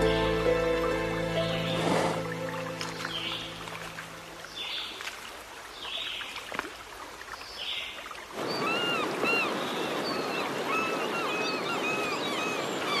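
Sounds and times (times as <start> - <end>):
river rapids rushing: 0.0 - 4.4.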